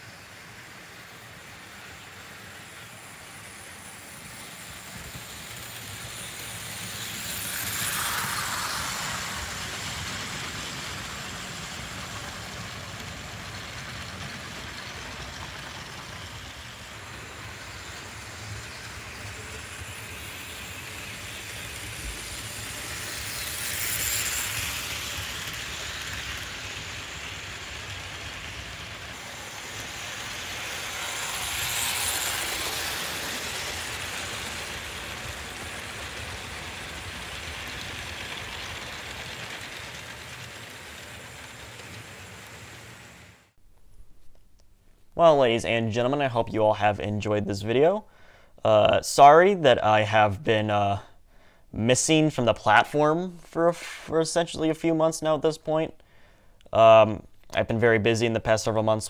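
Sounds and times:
model train rolling on track: 0.0s - 43.6s, 56.7s - 59.0s
locomotive motor running: 1.0s - 43.5s.

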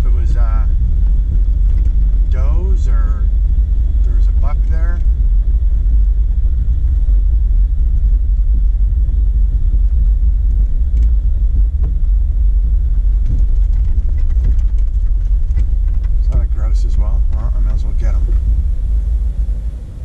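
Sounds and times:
engine and tyres rumbling: 0.0s - 20.0s
light clicks and rattles: 1.0s - 2.2s, 13.1s - 18.4s.

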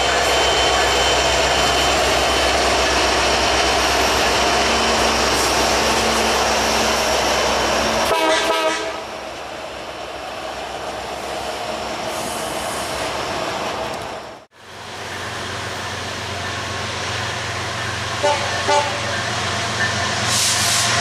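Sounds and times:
diesel locomotive engine rumble: 0.0s - 21.0s
train horn blast: 8.0s - 9.0s, 18.2s - 19.1s.

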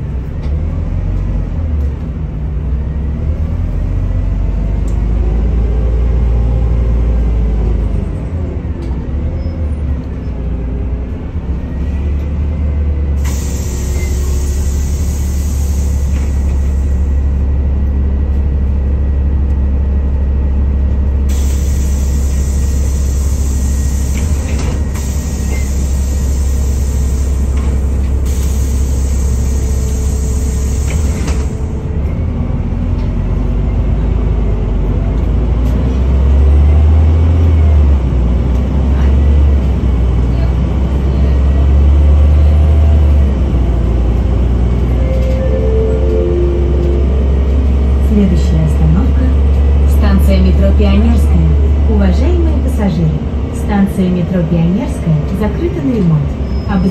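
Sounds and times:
bus engine idling: 0.0s - 56.9s
air hiss: 13.2s - 17.1s, 21.3s - 27.6s, 28.2s - 31.8s.

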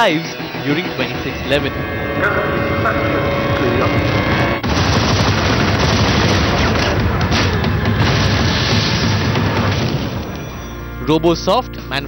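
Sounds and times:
booms: 3.7s - 10.7s
rapid gunfire: 4.6s - 10.4s.

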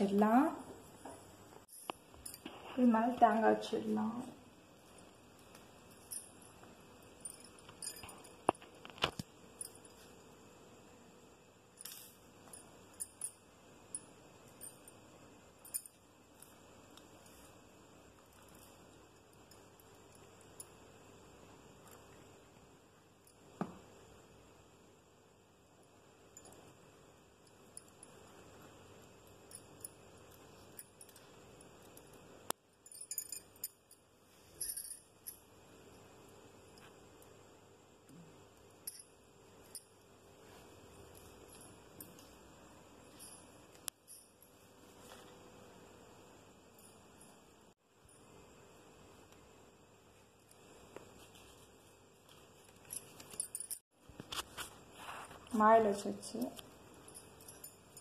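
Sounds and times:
jewellery jingling and clinking: 0.2s - 10.2s, 11.7s - 20.9s, 27.4s - 35.6s, 38.7s - 45.4s, 50.5s - 53.9s, 56.3s - 58.0s
small objects clicking and tapping: 4.9s - 10.2s.

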